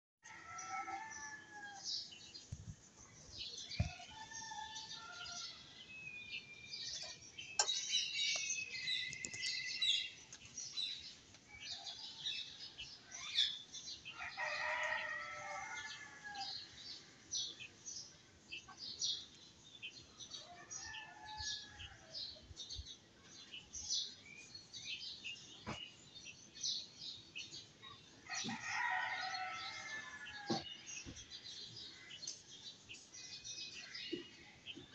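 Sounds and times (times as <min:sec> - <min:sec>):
birds chirping: 0:00.6 - 0:11.2.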